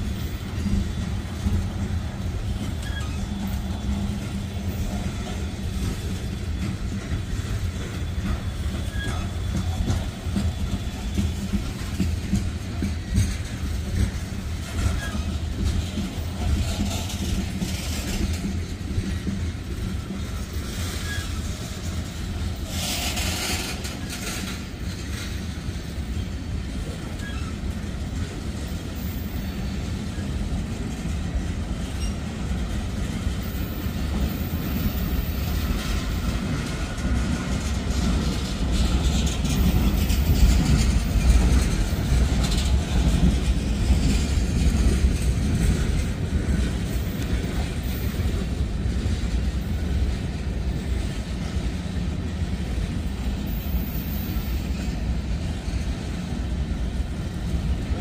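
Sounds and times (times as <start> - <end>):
freight train wheels clattering: 0.0 - 58.0.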